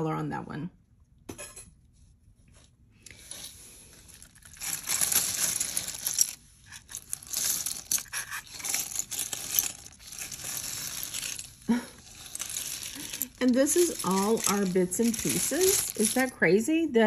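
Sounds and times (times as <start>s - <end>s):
rustling: 2.1s - 16.4s
jewelry clattering and jingling: 3.3s - 16.5s.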